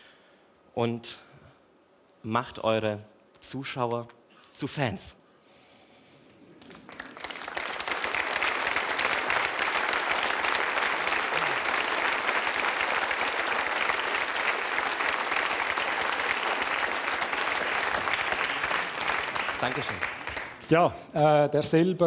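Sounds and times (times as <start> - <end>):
large audience applauding: 6.6 - 20.7.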